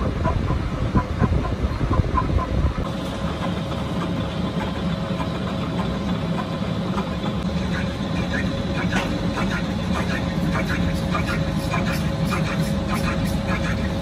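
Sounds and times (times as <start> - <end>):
steady hum: 0.0 - 14.0
metal lathe cutting: 2.9 - 14.0.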